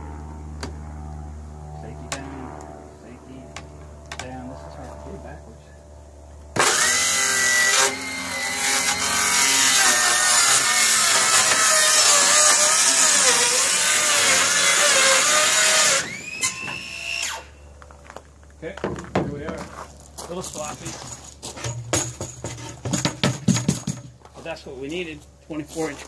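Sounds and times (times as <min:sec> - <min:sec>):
circular saw cutting plywood: 0:06.6 - 0:17.6.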